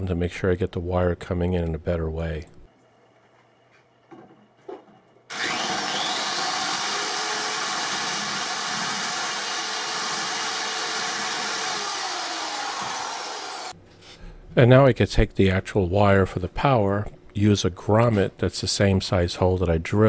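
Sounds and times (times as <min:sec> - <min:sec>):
electric drill whining: 0:05.3 - 0:13.8.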